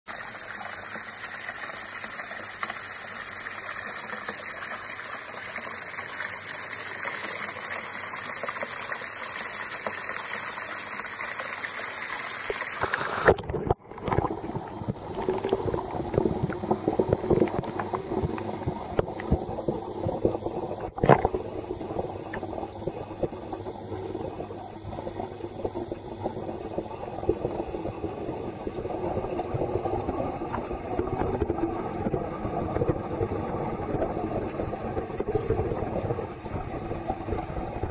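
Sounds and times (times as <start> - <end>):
water trickling and splashing: 0.1 - 37.9
muffled underwater churning rumble: 13.0 - 37.9.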